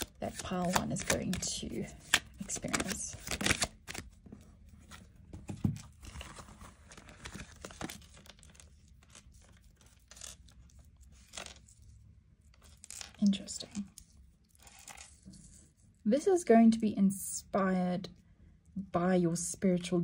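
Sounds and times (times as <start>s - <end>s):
cards being shuffled: 0.0s - 11.9s, 12.6s - 15.6s.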